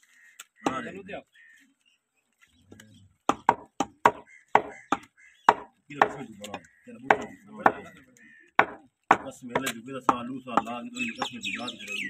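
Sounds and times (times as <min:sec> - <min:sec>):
butcher's knife chopping meat: 0:03.3 - 0:06.3, 0:07.0 - 0:07.9, 0:08.6 - 0:11.4.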